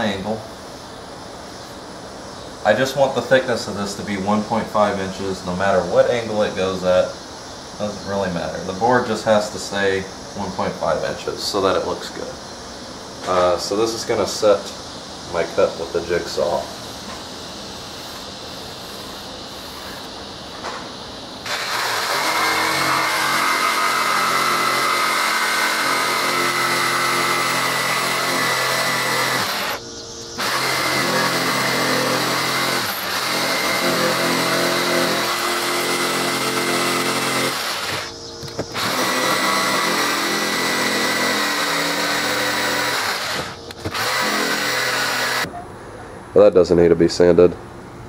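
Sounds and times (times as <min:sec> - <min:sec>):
jigsaw cutting wood: 0:21.4 - 0:29.8, 0:30.4 - 0:38.1, 0:38.7 - 0:45.5.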